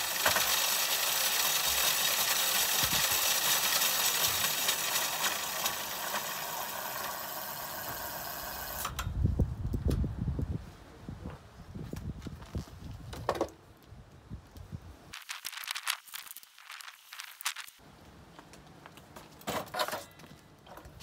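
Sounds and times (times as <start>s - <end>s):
electric motor high whine: 5.2s - 9.0s.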